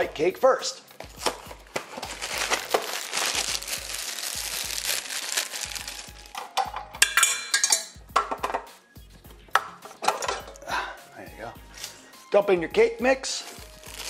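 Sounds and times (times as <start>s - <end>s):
plastic bag crinkling: 1.1s - 6.4s, 13.4s - 14.0s.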